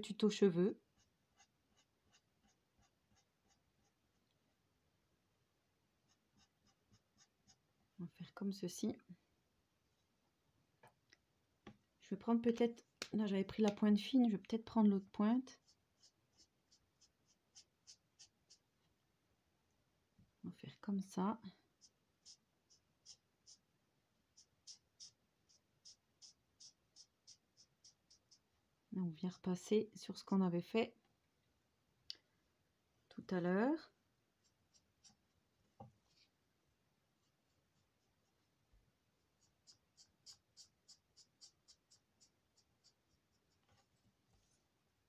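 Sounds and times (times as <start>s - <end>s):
marker scratching on paper: 1.0s - 4.0s, 6.0s - 7.6s, 15.6s - 18.6s, 21.8s - 23.7s, 24.3s - 28.4s, 34.4s - 35.2s, 39.4s - 44.6s.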